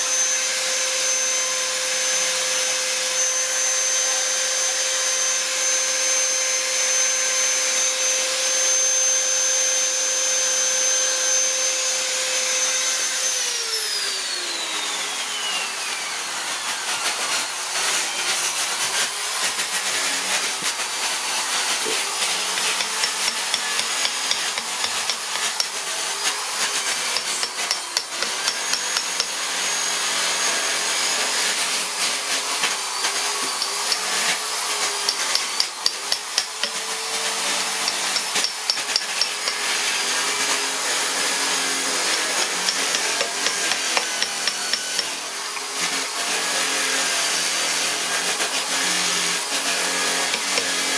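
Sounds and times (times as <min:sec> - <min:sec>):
rotary tool grinding wood: 0:00.0 - 0:50.9
chisel knocking into wood: 0:22.5 - 0:25.7, 0:42.6 - 0:45.1.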